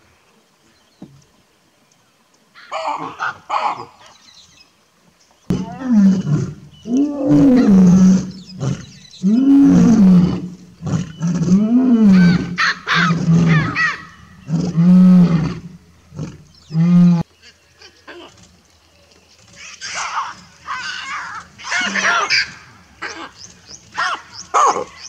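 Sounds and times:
baboons barking: 2.6s - 4.0s, 12.1s - 14.1s, 19.6s - 25.0s.

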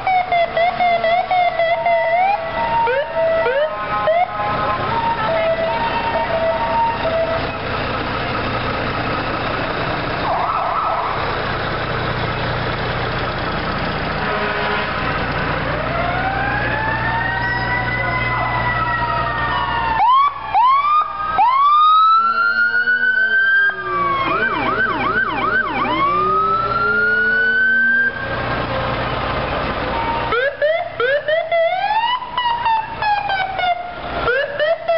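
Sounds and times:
electronic sirens wailing: 0.0s - 8.0s, 10.2s - 11.4s, 15.5s - 29.1s, 29.8s - 34.9s
truck engine noise: 0.0s - 34.9s.

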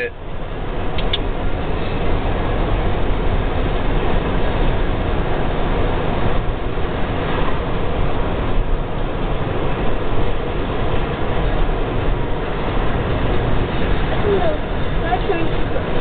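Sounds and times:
car road and wind noise: 0.0s - 16.0s.

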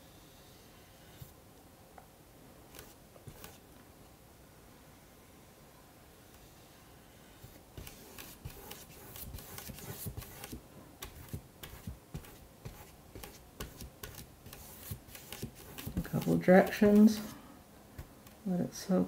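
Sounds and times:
brush swishing on paper: 2.7s - 3.6s, 6.3s - 17.4s.

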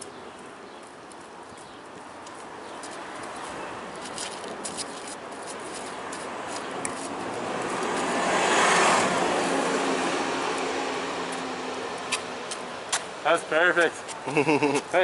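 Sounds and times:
car passing: 5.6s - 14.0s.

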